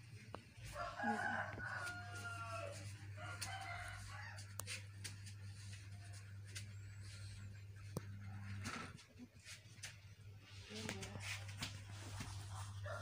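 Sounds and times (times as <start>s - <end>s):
steady low hum: 0.0s - 13.0s
rooster crowing: 0.7s - 4.8s, 12.8s - 13.0s.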